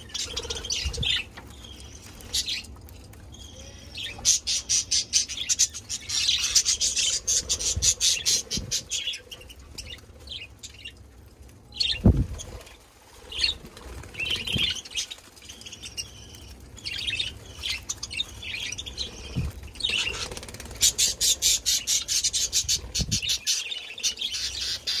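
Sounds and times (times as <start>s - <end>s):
budgerigars chirping: 18.5s - 25.0s.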